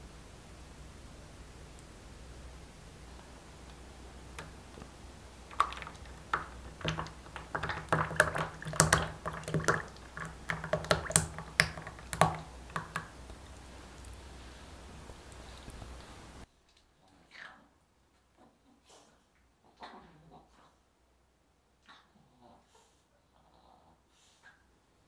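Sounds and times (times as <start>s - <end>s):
irregular clicks and light taps: 5.5s - 14.2s.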